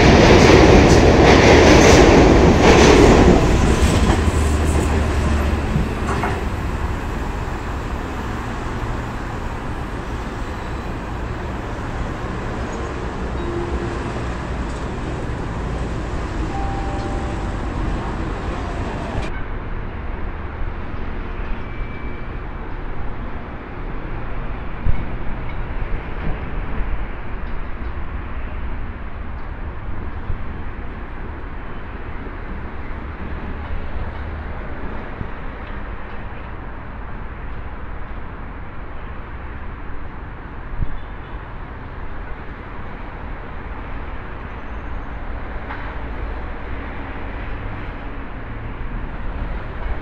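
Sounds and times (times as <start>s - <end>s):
electric train rumble and hiss: 0.0s - 19.3s.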